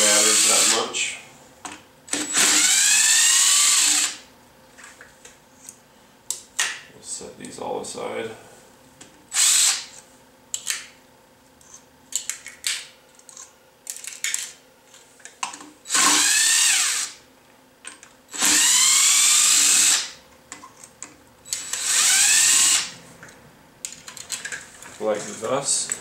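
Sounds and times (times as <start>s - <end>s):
power driver motor whine: 2.1s - 4.2s, 15.9s - 17.2s, 18.3s - 20.1s, 21.5s - 22.9s.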